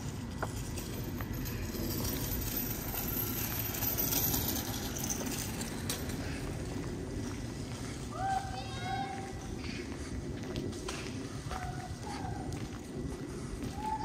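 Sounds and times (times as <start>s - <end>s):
kick scooter rolling on asphalt: 0.0s - 14.0s
low traffic rumble: 0.0s - 14.0s
footsteps on paving: 5.2s - 14.0s.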